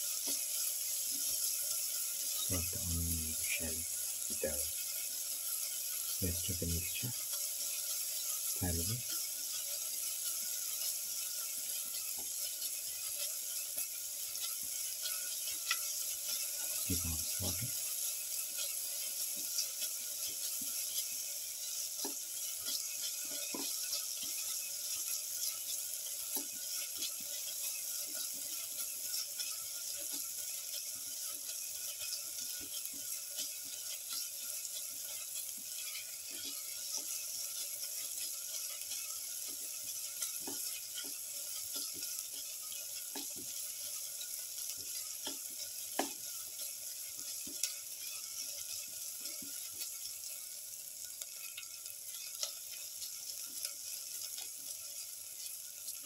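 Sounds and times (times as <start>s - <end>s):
onions sizzling in a pan: 0.0s - 56.0s.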